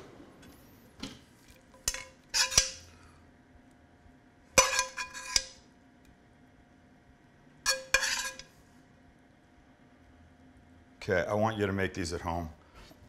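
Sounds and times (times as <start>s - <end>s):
metal spoon scraping a skillet: 1.8s - 2.9s, 4.6s - 5.6s, 7.7s - 8.6s.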